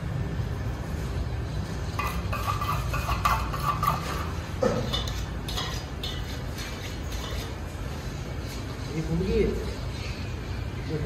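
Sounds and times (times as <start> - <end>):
knives clinking against steel bowl: 2.0 - 7.6.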